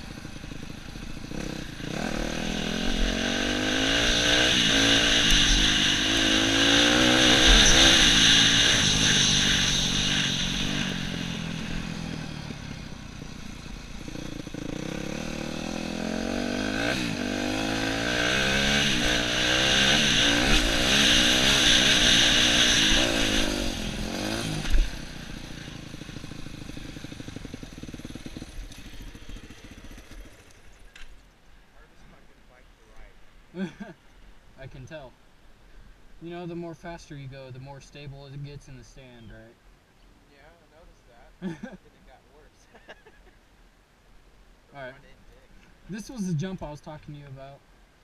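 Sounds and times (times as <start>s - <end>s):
dirt bike engine revving: 0.0s - 31.1s, 45.9s - 47.3s.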